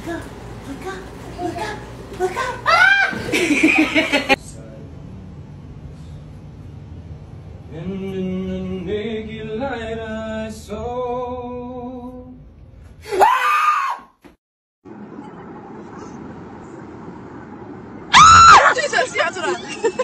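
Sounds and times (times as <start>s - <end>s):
person screaming: 2.4s - 3.3s, 13.1s - 14.1s
man singing or humming: 7.7s - 12.4s.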